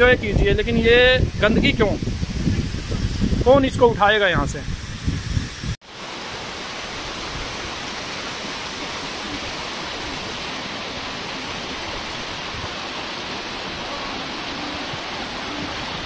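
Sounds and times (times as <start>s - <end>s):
waterfall roaring: 5.8s - 16.0s.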